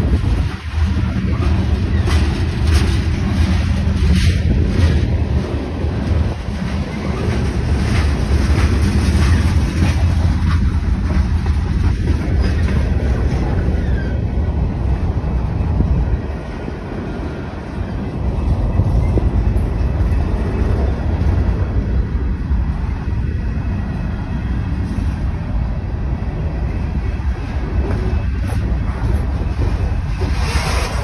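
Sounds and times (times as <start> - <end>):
wheels clicking and clacking: 0.0 - 14.1, 27.7 - 31.0
train wheels rumbling on rail: 0.0 - 31.0.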